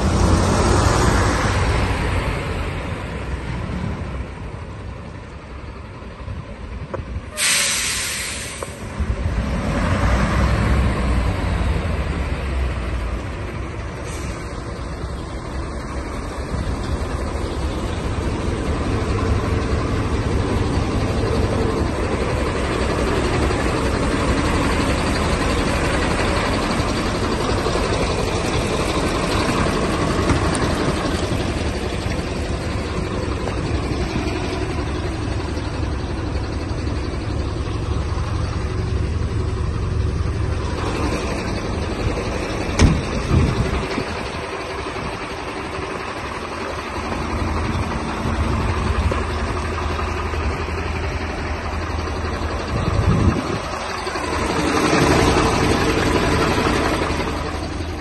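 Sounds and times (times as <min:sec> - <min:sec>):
truck diesel idling: 0:00.0 - 0:58.0.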